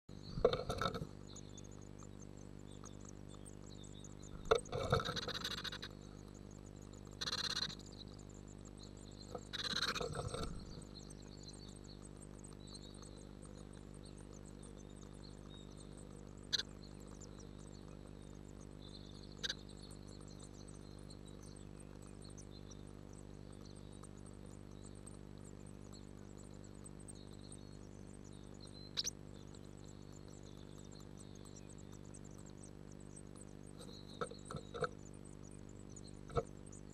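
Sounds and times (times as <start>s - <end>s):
electrical hum: 0.0s - 36.9s
nestlings begging cheeps: 0.1s - 12.2s, 15.0s - 20.0s, 28.6s - 36.9s
rustling and wing flutter: 4.4s - 5.9s.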